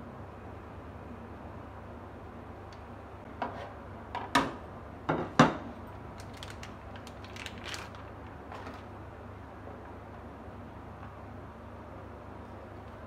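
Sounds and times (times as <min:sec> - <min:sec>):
plastic wrapper crinkling: 0:06.1 - 0:08.9.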